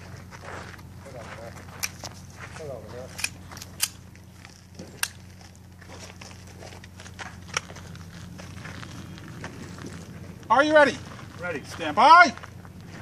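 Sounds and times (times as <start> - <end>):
steady low hum: 0.0 - 13.0
pistol clicks: 3.1 - 4.1.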